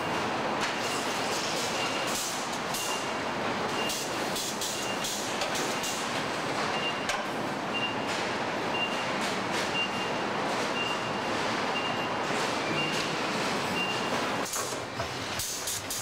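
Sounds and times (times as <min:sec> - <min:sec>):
conveyor hum and hiss: 0:00.0 - 0:16.0
high warning beep: 0:07.7 - 0:08.1, 0:08.7 - 0:09.1, 0:10.8 - 0:13.1, 0:13.8 - 0:14.2.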